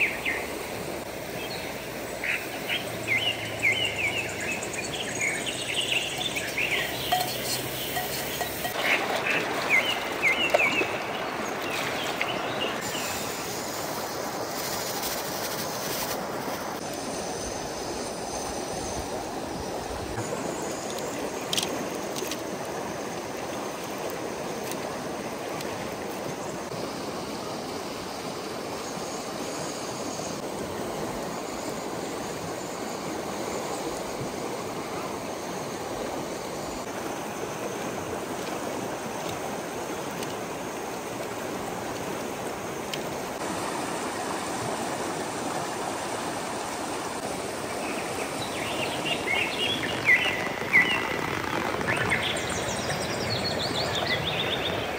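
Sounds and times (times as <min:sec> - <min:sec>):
birds chirping: 0:01.4 - 0:13.4, 0:47.8 - 0:54.9
steady rushing noise: 0:47.0 - 0:54.9.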